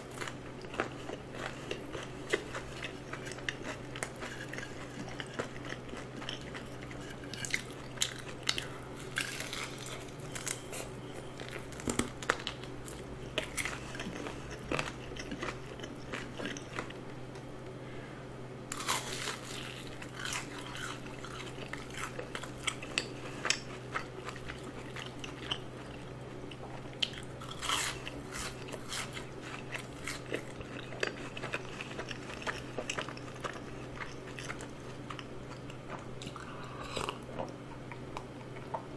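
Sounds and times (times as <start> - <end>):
crunchy chewing of fried food: 0.0 - 17.3, 18.7 - 38.9.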